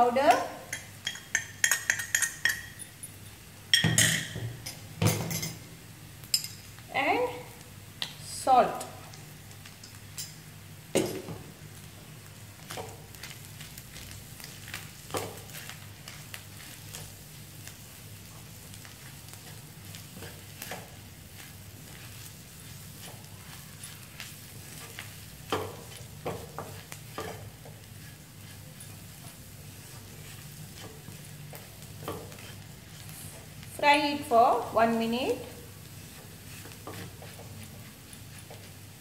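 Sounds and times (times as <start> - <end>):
onions sizzling in a wok: 0.0 - 39.0.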